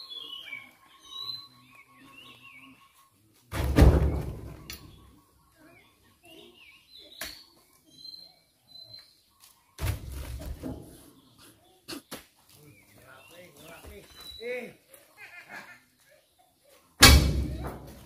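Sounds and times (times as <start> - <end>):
birds chirping faintly: 0.0 - 17.0
heavy thuds in steel truck bed: 3.6 - 5.0, 17.0 - 18.0
sharp knock: 17.0 - 17.8.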